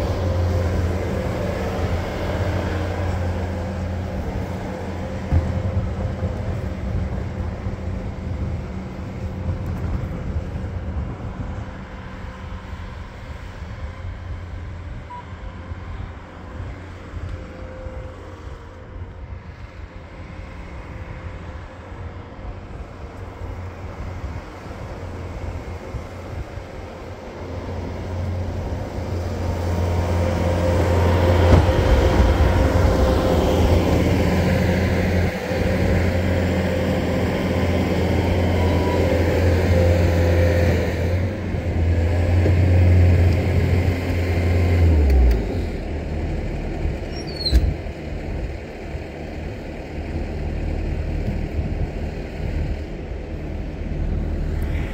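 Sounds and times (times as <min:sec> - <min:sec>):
skid steer engine running: 0:00.0 - 0:54.9
sharp squeak: 0:15.1 - 0:15.4, 0:47.0 - 0:47.7.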